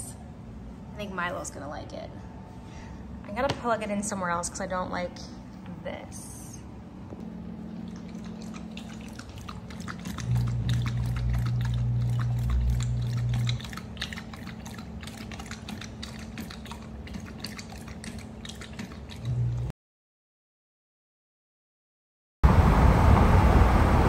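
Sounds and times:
steady low hum: 0.0 - 19.7
dog lapping water: 7.6 - 19.7.

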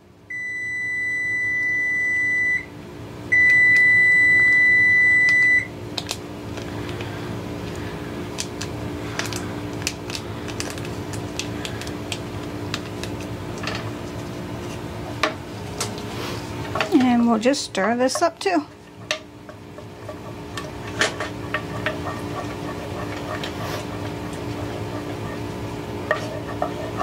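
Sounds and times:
low steady hum: 0.0 - 27.0
cooking timer beeping: 0.3 - 2.7, 3.3 - 5.7
utensil and packaging clicks and scrapes: 6.0 - 14.8, 19.8 - 27.0.

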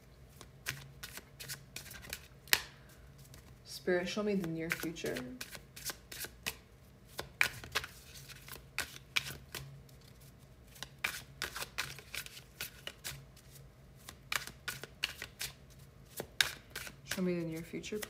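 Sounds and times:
cards being shuffled: 0.3 - 3.6, 4.3 - 18.0.

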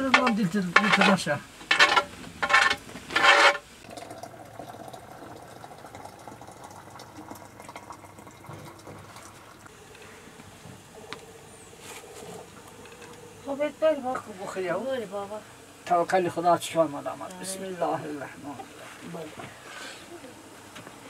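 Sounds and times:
liquid boiling in a pot: 0.0 - 21.0.

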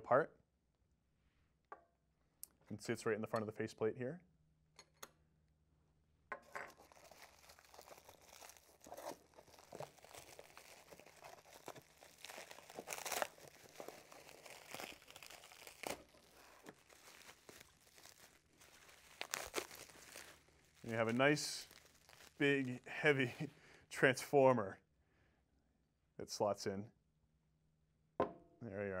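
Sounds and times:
bubble wrap crinkling and crackling: 6.7 - 23.6.

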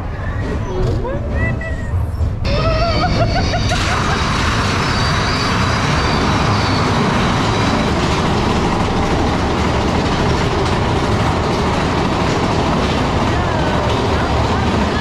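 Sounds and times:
roller coaster rumbling on track: 0.0 - 15.0.

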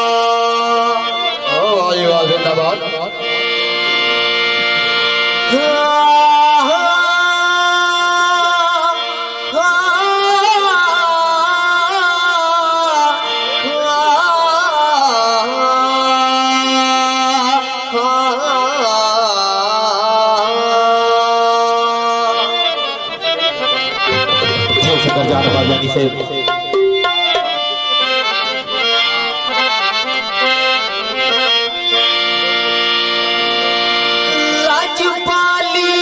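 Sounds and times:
man singing into a microphone: 0.0 - 3.4, 5.4 - 23.2, 34.2 - 36.0
harmonium sustained notes: 0.0 - 36.0.

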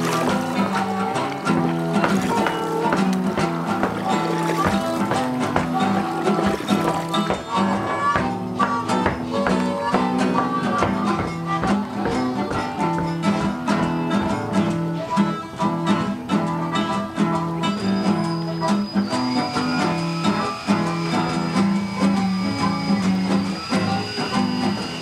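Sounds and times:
picked acoustic guitar music: 0.0 - 25.0
long high held note: 19.4 - 25.0.

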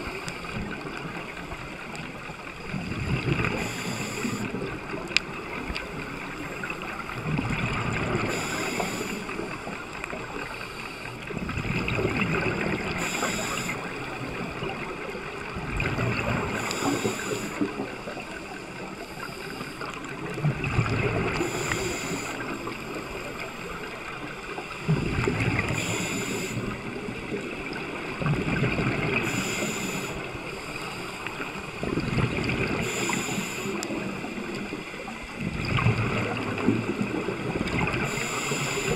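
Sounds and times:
exhaled bubbles rumbling underwater: 0.0 - 38.9
regulator inhale hiss: 3.4 - 4.9, 8.2 - 11.3, 12.9 - 14.5, 16.5 - 20.1, 21.3 - 24.0, 25.6 - 26.9, 29.1 - 31.5, 32.7 - 35.1, 37.9 - 38.9.

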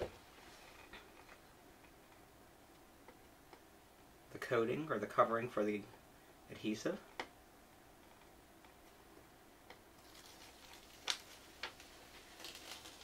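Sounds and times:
sharp ticks of adhesive peeling: 9.7 - 13.0
paper liner peeling with crackling: 10.0 - 13.0.

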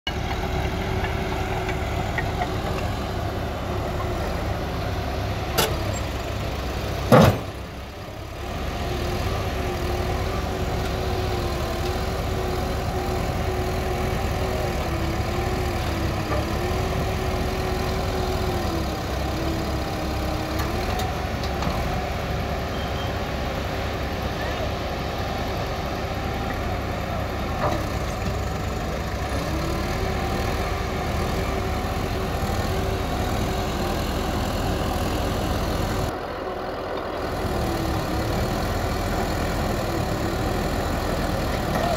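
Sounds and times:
diesel engines running: 0.0 - 41.9.

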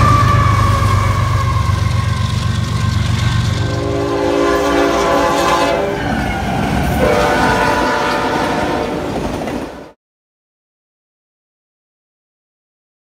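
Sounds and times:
locomotive air horn: 0.0 - 10.0
train wheels rumbling on rails: 0.0 - 10.0.

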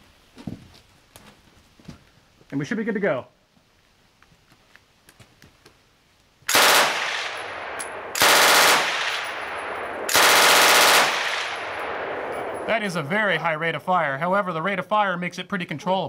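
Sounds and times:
machine gun bursts: 6.5 - 7.3, 8.2 - 9.4, 10.1 - 11.6
ringing gunshot echo: 6.5 - 12.7.

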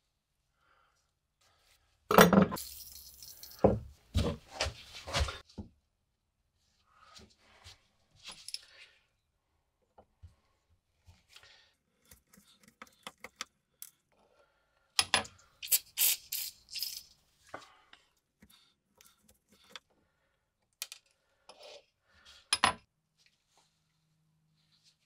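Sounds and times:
aerosol can spraying: 15.6 - 17.0.

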